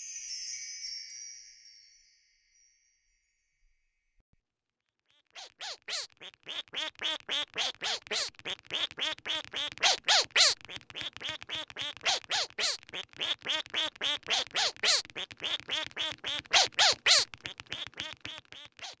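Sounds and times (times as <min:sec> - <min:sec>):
duck quacking: 0:05.2 - 0:19.0.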